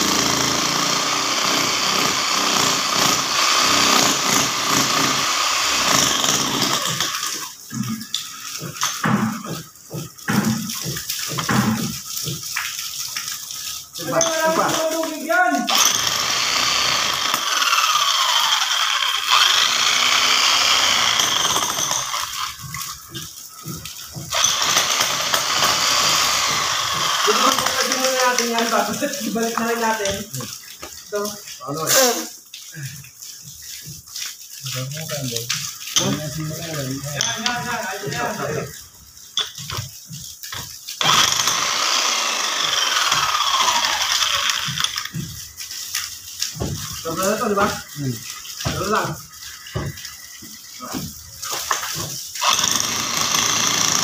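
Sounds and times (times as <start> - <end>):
demolition hammer breaking rock: 24.2 - 28.1, 51.7 - 54.0.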